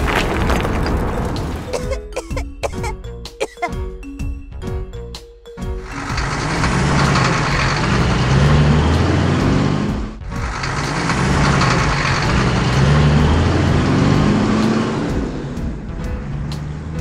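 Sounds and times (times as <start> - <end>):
dump truck engine revving: 5.6 - 17.0.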